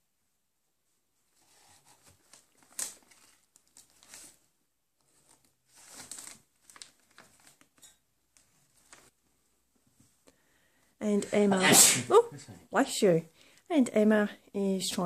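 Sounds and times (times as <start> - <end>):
paper envelopes rustling: 1.4 - 9.4.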